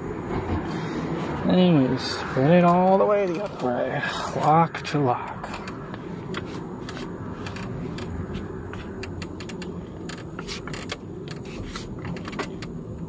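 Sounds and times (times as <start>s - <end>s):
steady low rumble: 0.0s - 13.0s
steering clicks and rattles: 5.2s - 13.0s.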